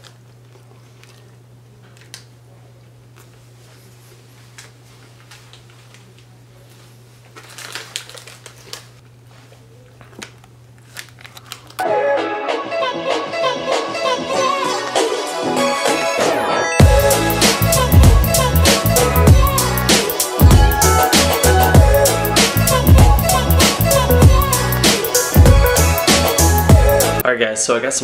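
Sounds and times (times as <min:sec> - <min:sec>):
plastic wrapper crinkling: 0:07.2 - 0:11.8
music: 0:11.8 - 0:27.3.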